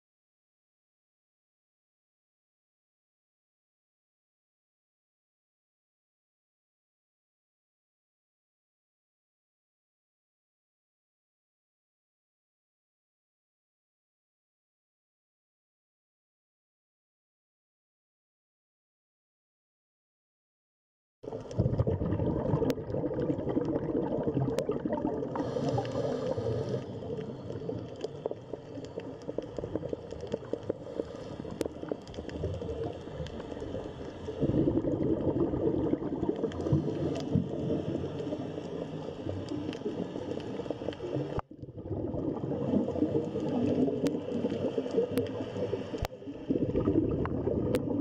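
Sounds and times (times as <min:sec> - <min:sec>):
underwater bubbling water rush: 0:21.2 - 0:48.0.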